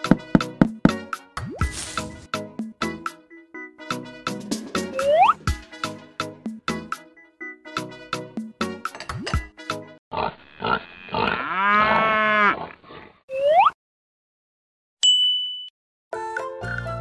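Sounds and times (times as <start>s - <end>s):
music: 0.0s - 10.0s, 16.1s - 17.0s
drawn-out cattle-like call: 10.2s - 12.8s
high bell-like ding: 15.0s - 15.7s.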